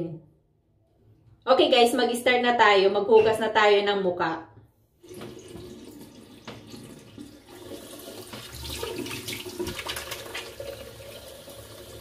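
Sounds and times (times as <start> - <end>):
tap running into sink: 5.1 - 11.8.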